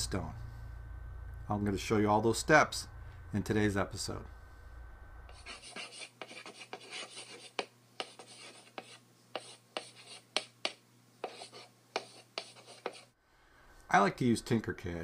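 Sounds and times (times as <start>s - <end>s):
chalk scratching on blackboard: 5.3s - 13.1s
chalk tapping: 5.3s - 13.1s.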